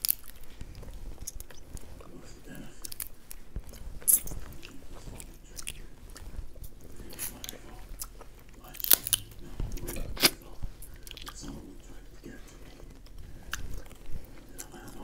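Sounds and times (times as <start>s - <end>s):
crab shells cracking by hand: 0.0s - 0.5s, 7.3s - 10.4s.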